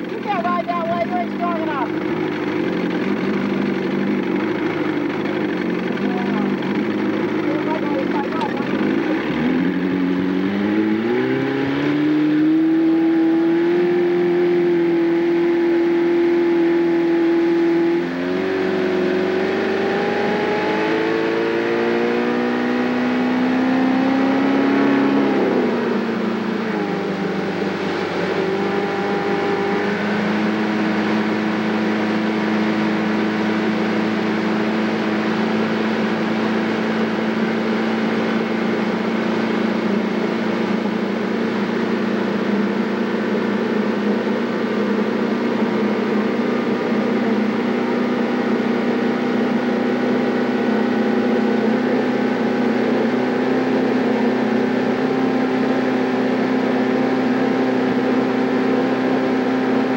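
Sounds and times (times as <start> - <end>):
motorboat engine running: 0.0 - 59.9
wind: 0.0 - 59.9.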